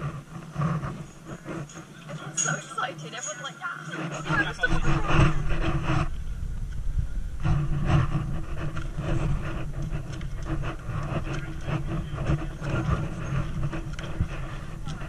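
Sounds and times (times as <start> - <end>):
steady low hum: 0.0 - 15.0
footsteps on walkway: 7.4 - 15.0.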